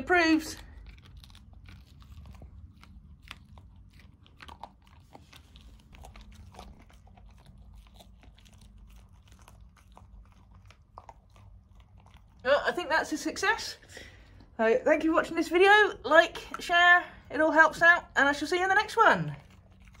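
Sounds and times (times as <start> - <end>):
dog crunching a biscuit: 0.0 - 12.5, 19.2 - 20.0.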